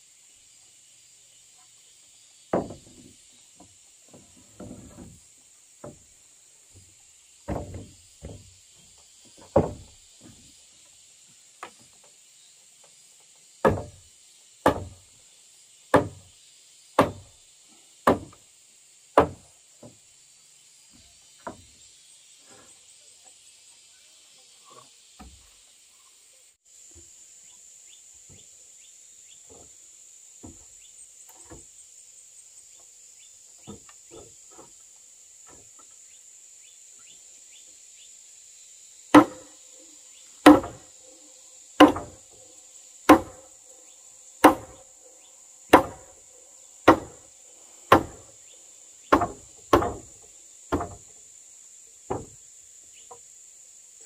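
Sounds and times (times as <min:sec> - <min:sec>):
high insect drone: 0:00.0 - 0:54.0
hammer striking timber beam: 0:02.5 - 0:02.9, 0:09.5 - 0:09.9, 0:13.6 - 0:14.0, 0:14.6 - 0:15.0, 0:15.9 - 0:16.2, 0:17.0 - 0:17.3, 0:18.0 - 0:18.4, 0:19.2 - 0:19.4, 0:39.1 - 0:39.5, 0:40.4 - 0:40.8, 0:41.8 - 0:42.2, 0:43.1 - 0:43.4, 0:44.4 - 0:44.8, 0:45.7 - 0:46.1, 0:46.8 - 0:47.2, 0:47.9 - 0:48.2, 0:49.1 - 0:50.1, 0:50.7 - 0:51.0.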